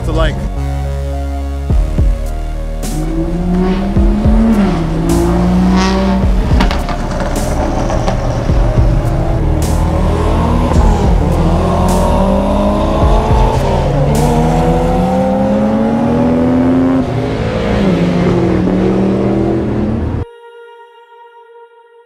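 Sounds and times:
cars accelerating hard past: 3.0 - 20.2.

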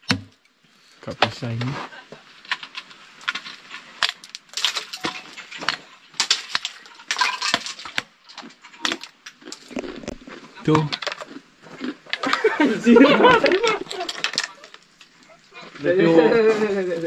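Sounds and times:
ice clinking and cracking: 2.4 - 12.6, 13.2 - 15.3
pole striking icicles: 2.5 - 11.2.

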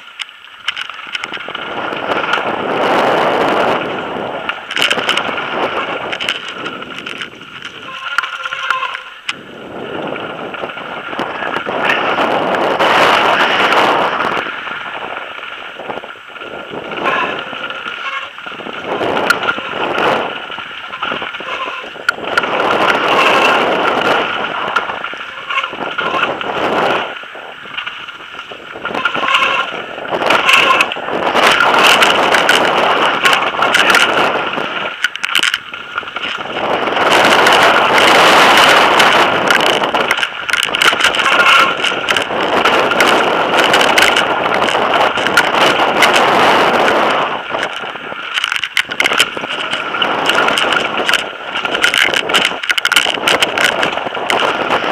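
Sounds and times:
bike and camera clattering: 0.0 - 54.9
tyres crunching over stones: 3.8 - 9.4, 27.8 - 54.9.

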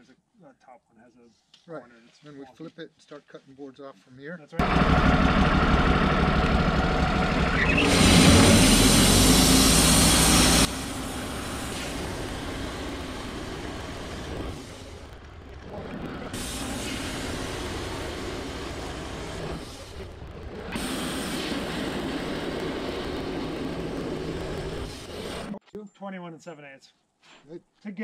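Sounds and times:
bandsaw mill cutting log: 4.6 - 25.6.

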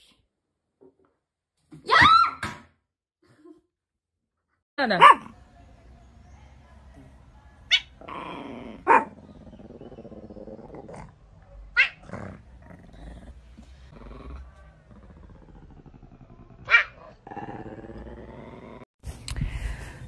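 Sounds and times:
cat growling low: 8.0 - 11.2, 12.0 - 18.9.

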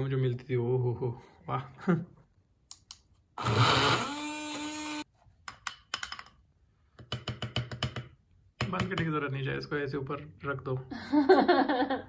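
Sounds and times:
blender grinding and whining: 3.4 - 5.0.

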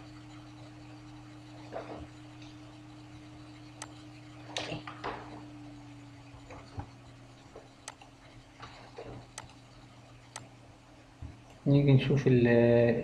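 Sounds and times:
low electrical hum: 0.0 - 13.0
mouse and keyboard clicks: 3.5 - 5.4, 7.8 - 8.1.

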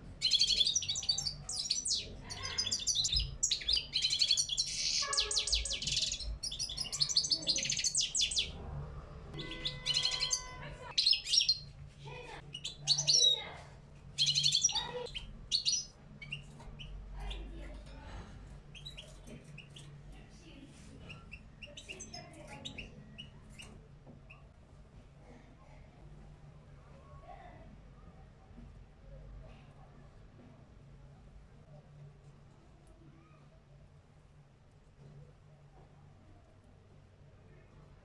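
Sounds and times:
goldfinch singing: 0.2 - 8.6, 9.4 - 11.7, 12.5 - 13.4, 14.2 - 17.4.

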